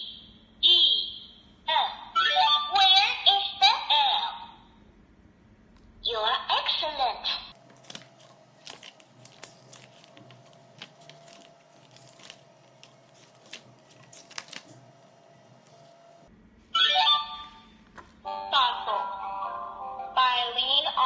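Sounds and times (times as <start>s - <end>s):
recorded voice from small speaker: 0.0s - 4.8s, 6.0s - 7.6s, 18.3s - 21.0s
pages turning and rustling: 7.6s - 16.3s.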